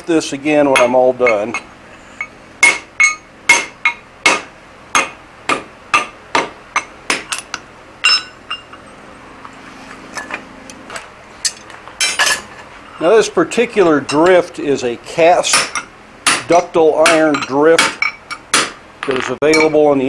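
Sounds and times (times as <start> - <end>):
hammer striking metal on anvil: 0.7 - 8.8, 15.5 - 19.8.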